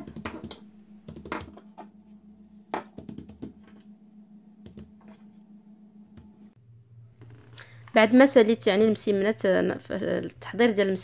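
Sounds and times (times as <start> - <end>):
hands patting dough on table: 0.0 - 1.6, 2.7 - 3.8.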